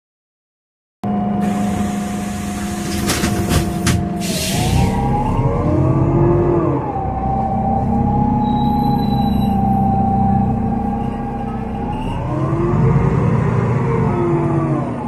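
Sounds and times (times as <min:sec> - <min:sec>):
bus engine pulling away: 0:01.1 - 0:15.0
pneumatic air hiss: 0:01.4 - 0:03.6, 0:04.2 - 0:04.9
knocks inside bus: 0:02.8 - 0:04.1
gearbox whine: 0:07.8 - 0:15.0.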